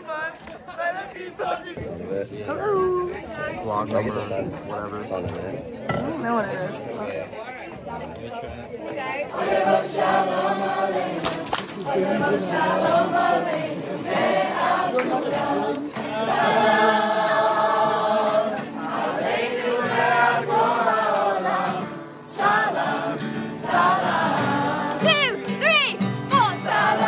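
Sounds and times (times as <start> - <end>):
group of people singing: 9.0 - 27.0.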